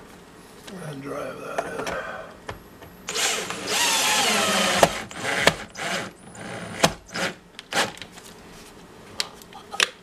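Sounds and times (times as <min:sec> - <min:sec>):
cordless drill motor whining: 0:03.1 - 0:07.9.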